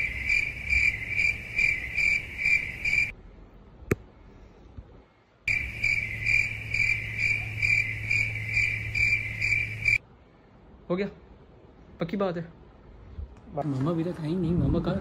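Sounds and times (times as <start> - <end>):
crickets chirping: 0.0 - 3.2, 5.5 - 10.0.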